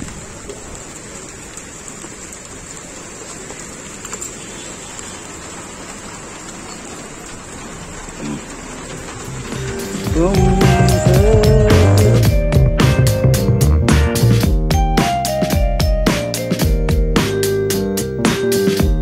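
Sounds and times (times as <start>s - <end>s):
rain falling on a wet street: 0.0s - 13.6s.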